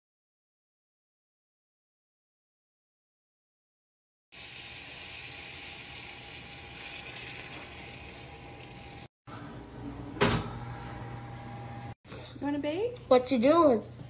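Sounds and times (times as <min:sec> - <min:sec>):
food sizzling in grease: 0:04.3 - 0:09.1.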